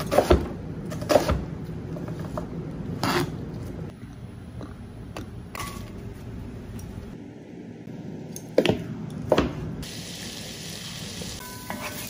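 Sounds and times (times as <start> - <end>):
frying hiss: 9.8 - 12.0.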